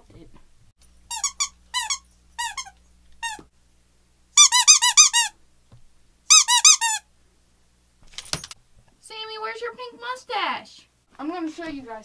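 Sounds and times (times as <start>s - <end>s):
squeaky toy squeaking: 1.1s - 3.4s, 4.4s - 5.3s, 6.3s - 7.0s.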